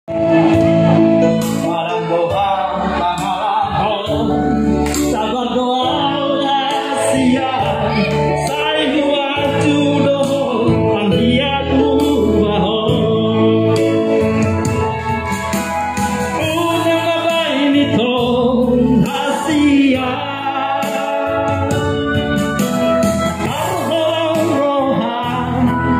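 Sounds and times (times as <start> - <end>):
man singing into a microphone: 0.1 - 15.2, 16.2 - 22.8, 23.4 - 25.9
instrumental backing with bass: 0.1 - 25.9.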